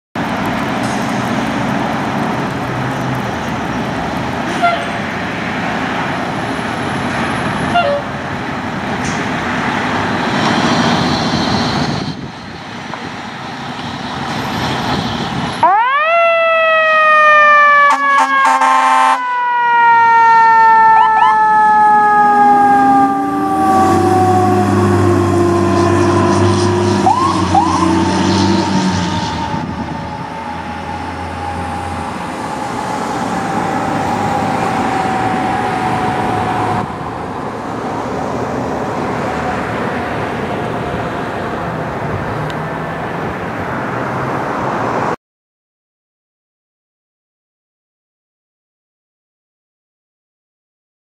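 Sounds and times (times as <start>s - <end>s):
fire engine siren: 0.2s - 42.0s
short horn blast: 4.5s - 5.0s, 17.9s - 19.2s.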